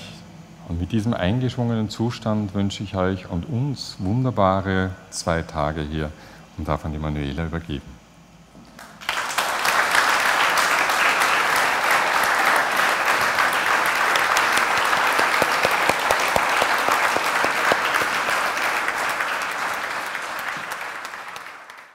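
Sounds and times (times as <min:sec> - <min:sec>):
audience applauding: 0:08.8 - 0:21.9.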